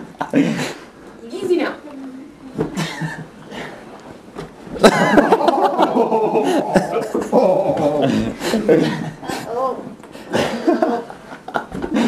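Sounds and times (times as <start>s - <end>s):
soft knocks and shuffling: 3.7s - 4.9s
people laughing loudly: 4.8s - 9.5s, 10.3s - 12.0s.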